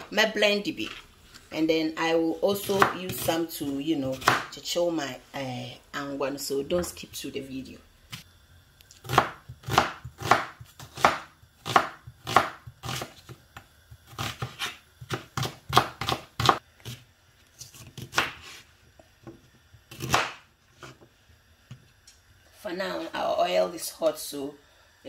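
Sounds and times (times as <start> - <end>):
knife chopping on plastic board: 2.6 - 3.3, 9.0 - 13.4, 14.0 - 17.0, 19.2 - 20.4.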